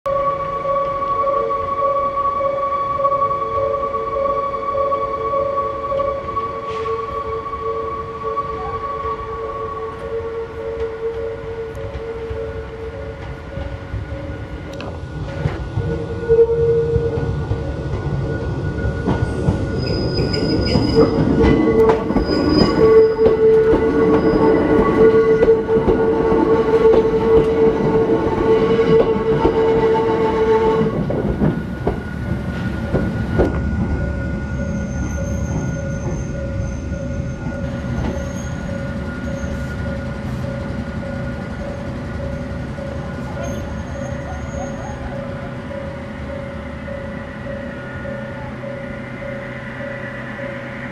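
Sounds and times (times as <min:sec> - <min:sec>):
train wheels rumbling on rail: 0:05.3 - 0:50.9
high wheel squeal: 0:15.8 - 0:30.5, 0:32.5 - 0:45.3.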